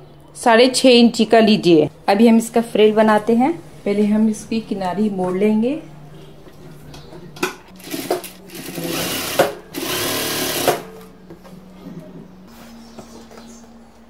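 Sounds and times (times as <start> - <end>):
sewing machine stitching: 7.8 - 10.9.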